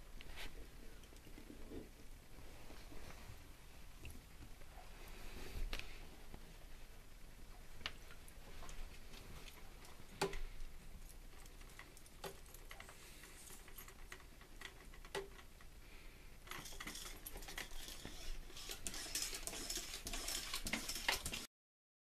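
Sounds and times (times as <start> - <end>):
clicks and rustling of hose fittings: 7.8 - 15.7, 16.4 - 21.5.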